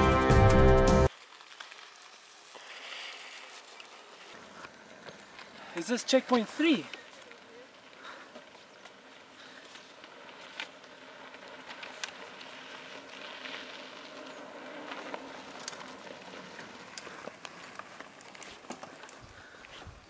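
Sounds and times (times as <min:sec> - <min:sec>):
paper map crinkling: 0:01.1 - 0:19.8.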